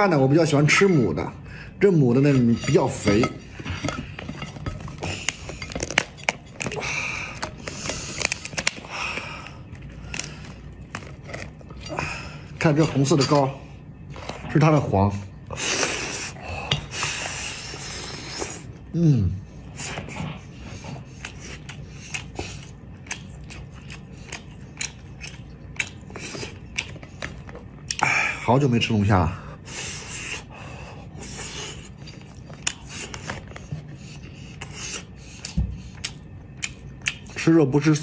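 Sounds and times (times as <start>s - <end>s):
low steady hum: 0.0s - 38.0s
crunchy shell crackling: 4.6s - 12.3s
chewing: 20.0s - 28.0s, 31.8s - 37.4s.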